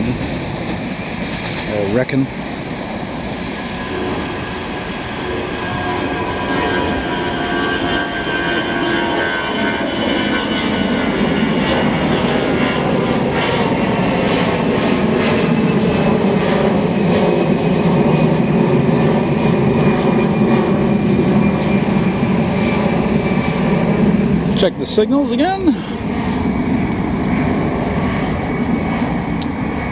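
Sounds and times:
train wheels rumbling on track: 0.0 - 9.3.

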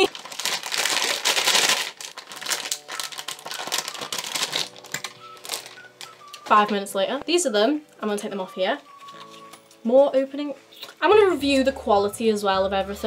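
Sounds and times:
packaging crinkling and tearing: 0.0 - 6.9, 8.8 - 9.8.

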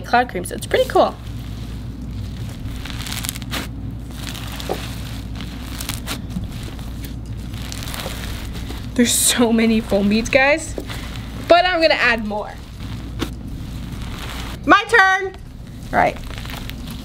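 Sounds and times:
foam-bead slime crackling: 0.6 - 17.0.

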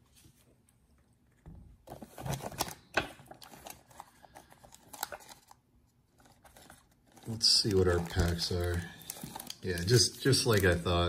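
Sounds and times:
foil and paper rustling: 6.2 - 11.0.

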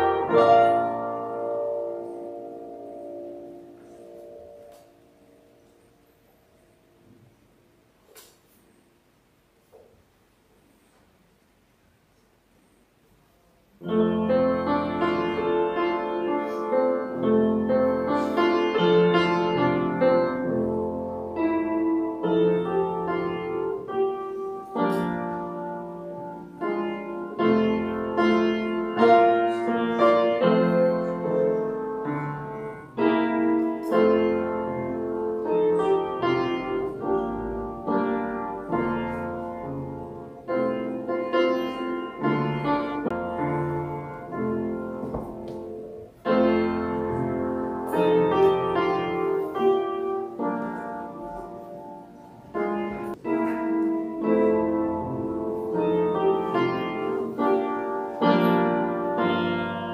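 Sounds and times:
slow piano music: 0.0 - 8.6, 13.6 - 59.9.

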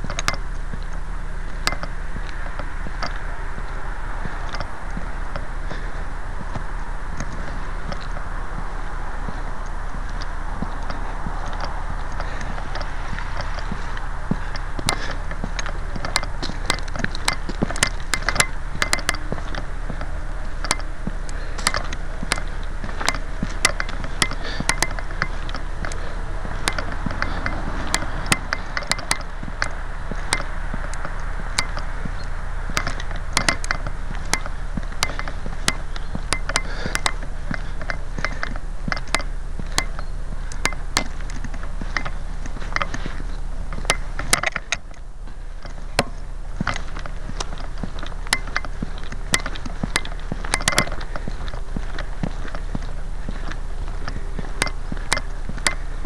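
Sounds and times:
rustling through dry grass: 0.0 - 56.0.

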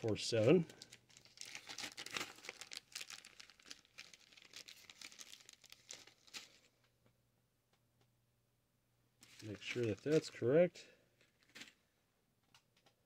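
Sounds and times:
packaging crinkling: 0.0 - 6.9, 9.2 - 10.4.

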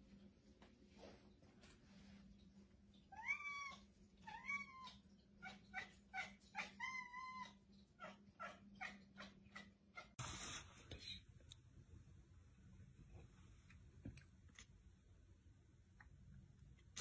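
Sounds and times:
faint steady hum: 10.6 - 17.0.

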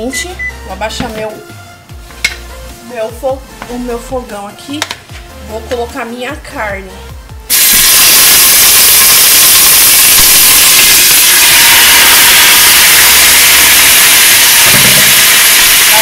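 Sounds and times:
meat sizzling in hot oil: 7.5 - 16.0.

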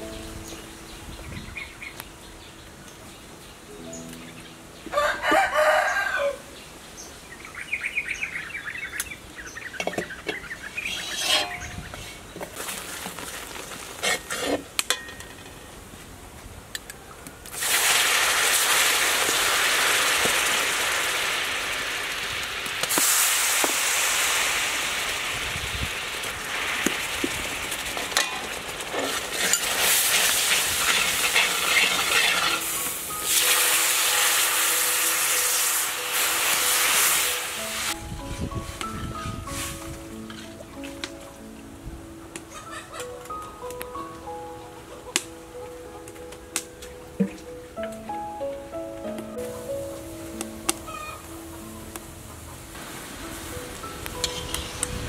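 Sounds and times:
rooster crowing: 4.9 - 6.6
spoon scraping a wok: 10.8 - 12.3, 14.0 - 14.6, 28.2 - 33.5
sauce sizzling in a hot wok: 17.6 - 38.0.

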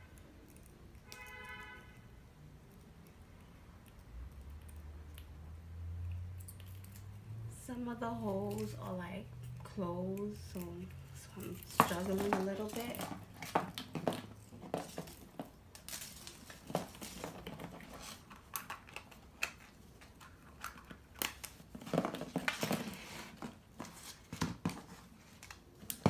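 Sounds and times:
rustling: 8.2 - 26.0.

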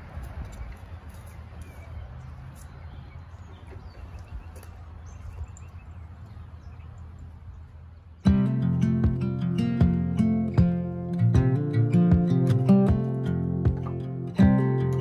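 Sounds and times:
faint birdsong: 0.0 - 15.0
strummed acoustic guitar music: 8.2 - 15.0.

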